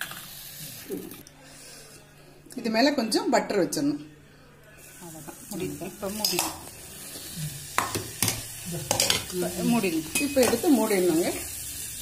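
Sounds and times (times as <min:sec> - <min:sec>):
butter sizzling on charcoal: 0:04.8 - 0:12.0.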